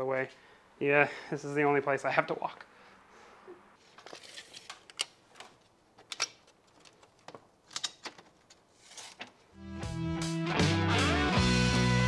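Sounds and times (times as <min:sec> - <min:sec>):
objects clicking and knocking: 0:03.9 - 0:09.4.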